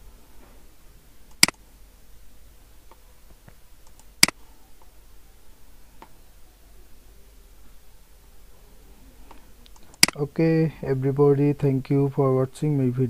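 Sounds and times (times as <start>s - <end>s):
low steady hum: 0.0s - 13.0s
computer mouse click: 3.8s - 4.4s.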